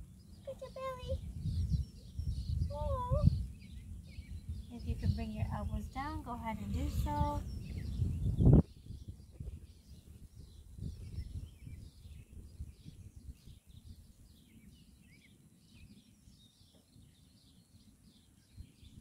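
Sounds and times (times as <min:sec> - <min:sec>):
faint bird chirps: 0:00.2 - 0:19.0.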